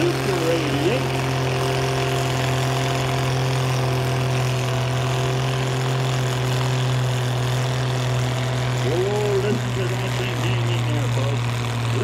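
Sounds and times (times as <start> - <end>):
tractor engine under heavy load: 0.0 - 12.0.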